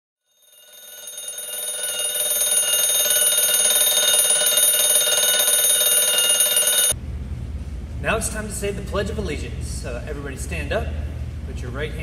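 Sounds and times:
alarm clock ringing: 0.3s - 7.0s.

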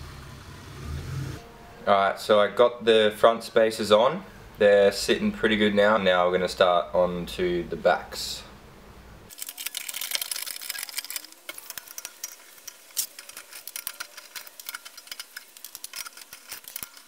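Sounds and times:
ratchet wrench clicking: 9.3s - 17.0s.

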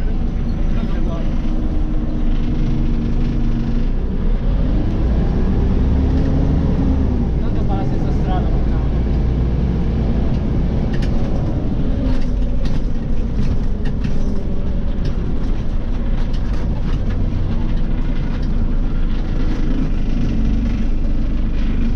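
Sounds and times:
bus engine and road rumble: 0.0s - 21.9s
fittings rattling and clicking: 10.3s - 21.9s.

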